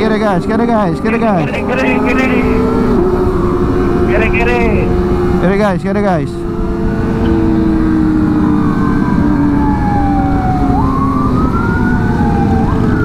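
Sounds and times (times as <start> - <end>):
motorcycle engines rumbling: 0.0 - 13.0
siren wailing: 1.1 - 5.4, 7.3 - 13.0.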